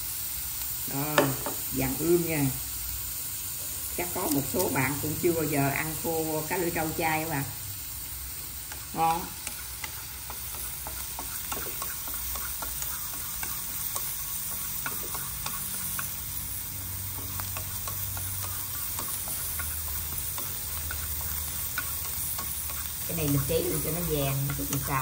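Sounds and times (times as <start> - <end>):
food sizzling in a frying pan: 0.0 - 25.0
chopsticks scraping a pan: 8.6 - 25.0.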